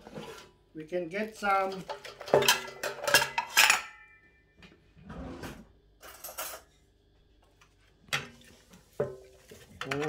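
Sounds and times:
soft kitchen scrapes and knocks: 0:00.0 - 0:00.6
metal spoon clinking basket: 0:01.5 - 0:04.2.

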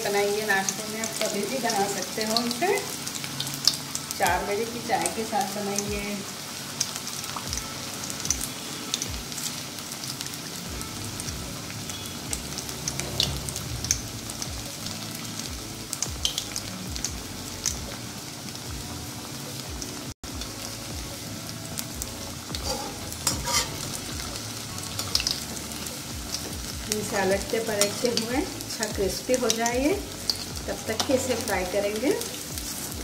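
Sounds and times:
patties deep-frying in hot oil: 0:00.0 - 0:33.0
metal spatula scraping pan: 0:22.5 - 0:24.0.

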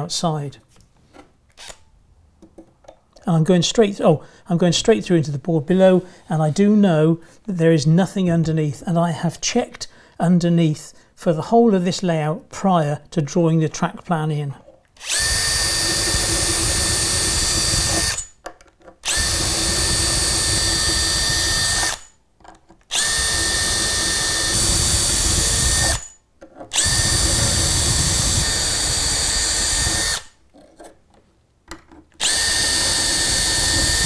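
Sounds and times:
cordless drill whining: 0:01.6 - 0:01.8, 0:15.0 - 0:18.4, 0:19.0 - 0:22.2, 0:22.9 - 0:30.4, 0:32.2 - 0:34.0.

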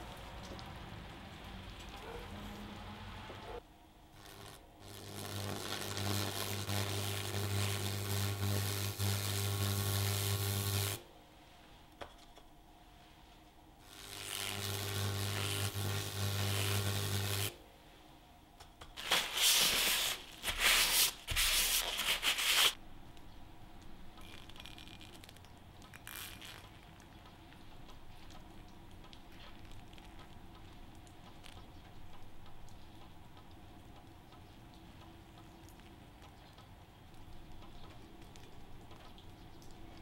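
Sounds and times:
low electrical buzz: 0:00.0 - 0:40.0
brush fizzing and crackling: 0:18.9 - 0:22.8, 0:24.2 - 0:34.0, 0:34.6 - 0:40.0
rough rubbing noise: 0:19.0 - 0:22.8.

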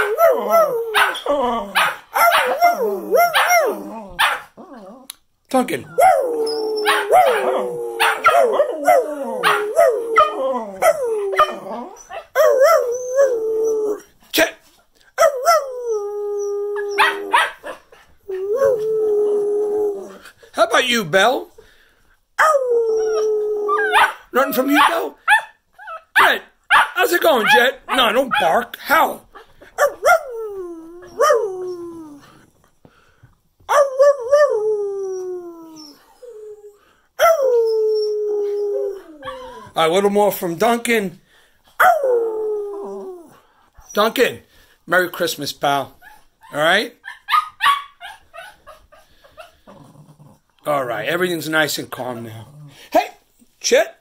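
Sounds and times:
dog howling: 0:00.0 - 0:05.1, 0:05.9 - 0:14.1, 0:15.2 - 0:17.6, 0:18.3 - 0:20.2, 0:22.4 - 0:24.7, 0:29.8 - 0:32.4.

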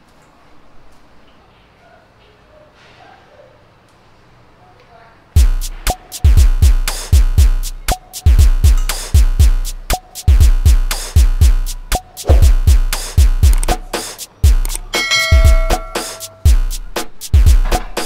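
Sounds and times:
heavy bass drum hits: 0:05.4 - 0:07.7, 0:08.3 - 0:13.6, 0:16.5 - 0:16.8
electronic hip-hop beat: 0:05.4 - 0:18.0.

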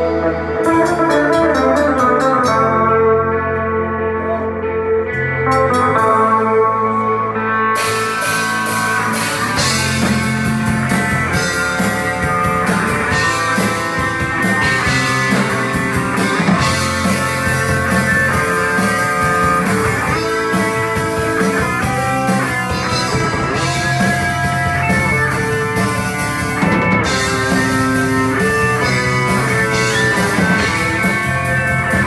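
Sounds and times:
bass guitar: 0:00.0 - 0:32.0
electric guitar: 0:00.0 - 0:32.0
drum kit with cymbal hits: 0:07.8 - 0:32.0.

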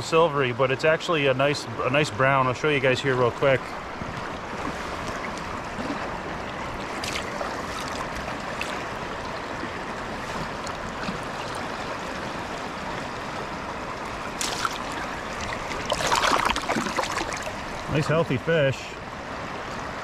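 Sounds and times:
river current rushing: 0:00.4 - 0:20.0
sharp water clicks: 0:03.6 - 0:12.3, 0:13.9 - 0:18.0.

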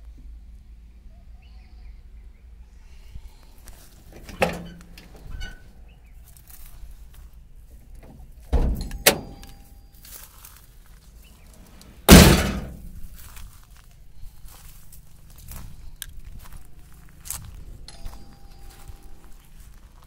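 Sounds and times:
car door slamming shut: 0:08.1 - 0:09.4, 0:12.0 - 0:13.0
knocks on metal door: 0:12.1 - 0:12.8.

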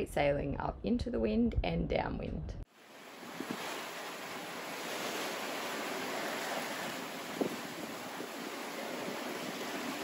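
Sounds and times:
wind and water rushing: 0:02.7 - 0:10.0.

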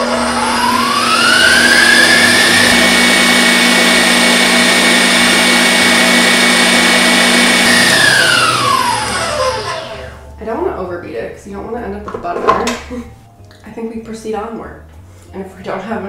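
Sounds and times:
stand mixer motor whining: 0:00.0 - 0:10.2.

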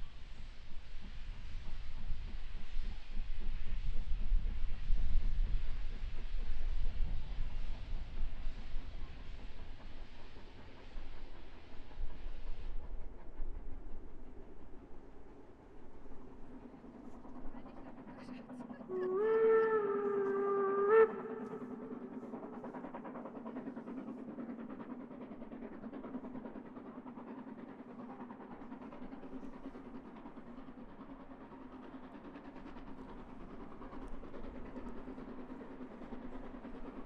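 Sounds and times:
distant steam locomotive working: 0:00.0 - 0:37.0
steam locomotive whistle: 0:18.9 - 0:22.1.

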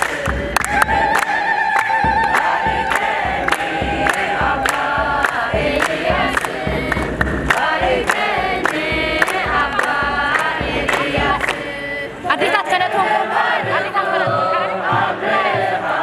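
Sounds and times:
hand claps: 0:00.0 - 0:11.7
women singing a hymn: 0:00.0 - 0:16.0.

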